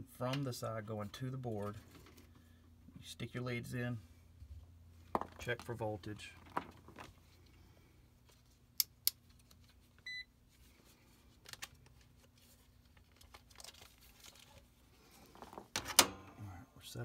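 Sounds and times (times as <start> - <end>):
faint steady hum: 0.0 - 17.0
meter beep: 10.1 - 10.3.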